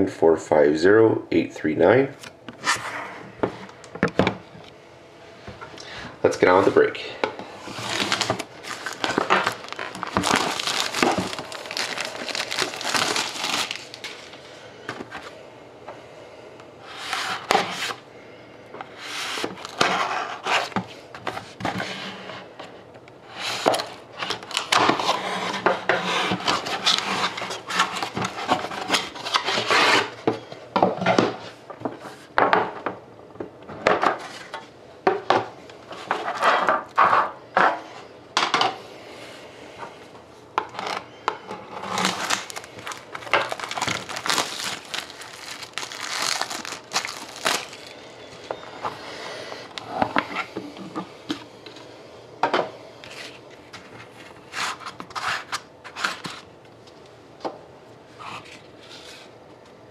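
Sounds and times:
wrapper and cardboard rustling: 7.6 - 15.3, 19.0 - 21.9, 23.4 - 30.2, 40.7 - 48.9, 54.1 - 56.5.

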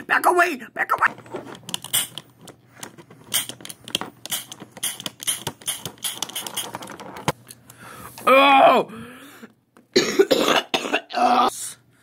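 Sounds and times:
plastic inhaler clicking and rattling: 1.6 - 7.7.

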